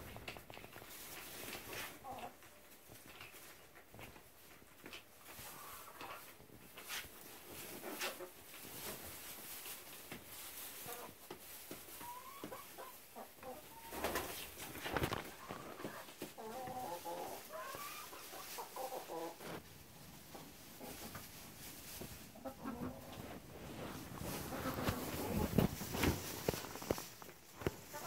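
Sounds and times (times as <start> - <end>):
rustling: 0.0 - 28.0
hens clucking: 1.1 - 4.2, 4.8 - 28.0.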